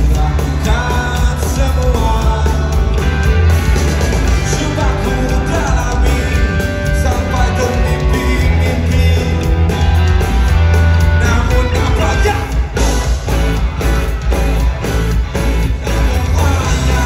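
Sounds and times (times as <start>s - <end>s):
man singing lead vocals: 0.0s - 10.2s, 11.0s - 13.2s, 15.8s - 17.0s
bass guitar: 0.0s - 17.0s
distorted electric guitars: 0.0s - 17.0s
drums: 0.0s - 17.0s.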